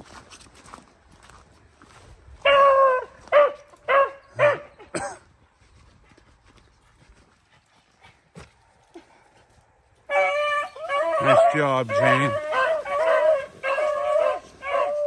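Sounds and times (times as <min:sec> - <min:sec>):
hound baying: 0:02.4 - 0:04.9, 0:10.1 - 0:15.0
dog barking: 0:02.5 - 0:04.7, 0:11.0 - 0:15.0.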